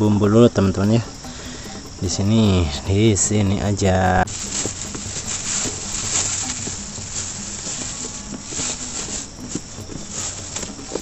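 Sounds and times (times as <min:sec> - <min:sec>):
plastic bag rustling: 0:03.9 - 0:11.0.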